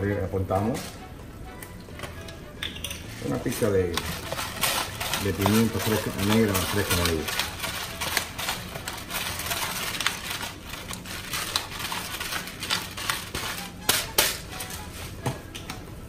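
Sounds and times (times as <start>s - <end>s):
pepper grinder crunching peppercorns: 3.2s - 14.9s.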